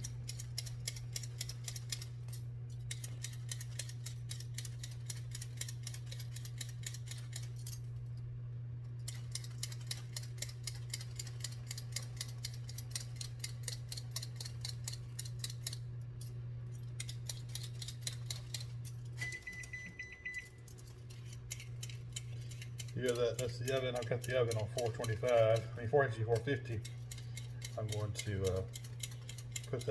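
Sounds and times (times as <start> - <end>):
potato peeler scraping: 0.0 - 7.9, 9.0 - 19.8, 20.4 - 29.9
steady low hum: 0.0 - 29.9
oven high beep: 19.2 - 20.7.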